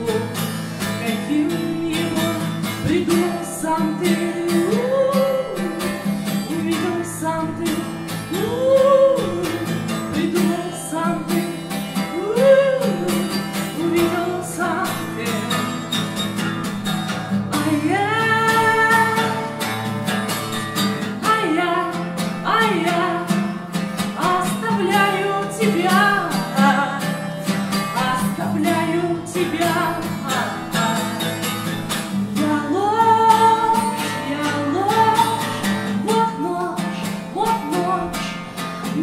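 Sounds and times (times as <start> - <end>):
acoustic guitar strumming: 0.0 - 39.0
woman singing: 0.0 - 39.0.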